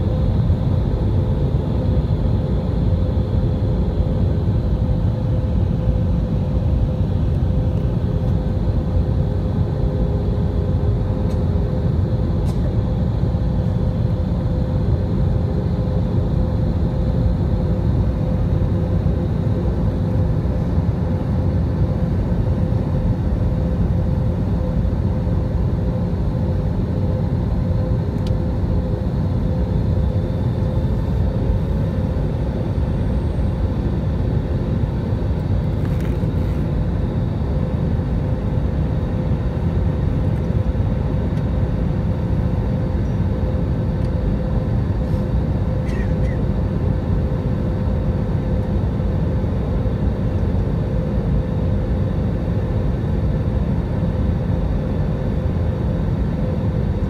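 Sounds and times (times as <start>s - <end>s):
faint steady hum: 0.0s - 57.0s
jet engines and airflow roar: 0.0s - 57.0s.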